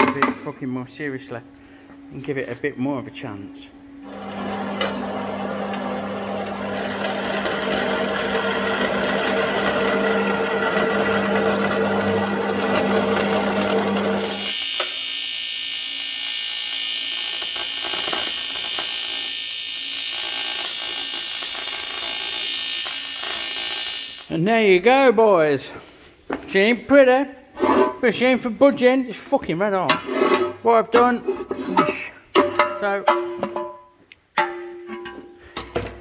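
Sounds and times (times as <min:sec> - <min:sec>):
bandsaw cutting metal: 0:04.0 - 0:24.3
welding buzz: 0:04.0 - 0:24.4.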